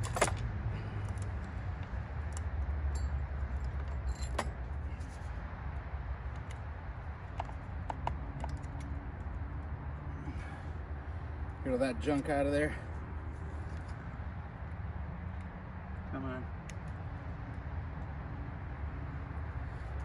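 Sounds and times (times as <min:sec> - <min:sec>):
saw chain clinking and rattling: 0:02.9 - 0:04.5.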